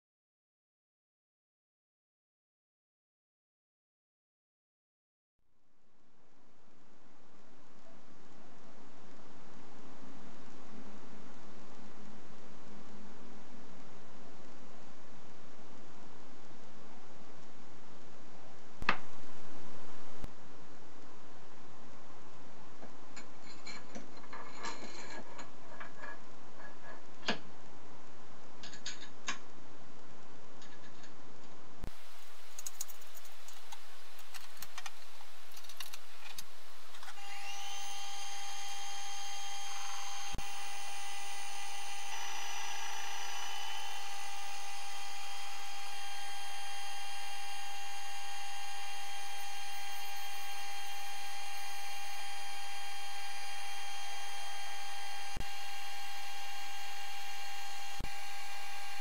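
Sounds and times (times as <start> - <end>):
lathe motor whining: 37.2 - 59.0.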